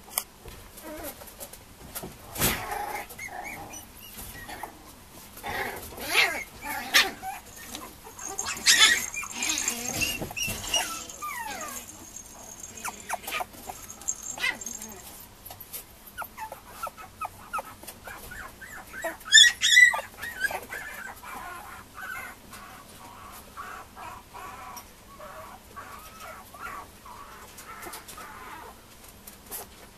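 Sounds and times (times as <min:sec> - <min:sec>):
puppy whimpering and whining: 0:02.5 - 0:04.8, 0:05.4 - 0:15.1, 0:16.2 - 0:22.4.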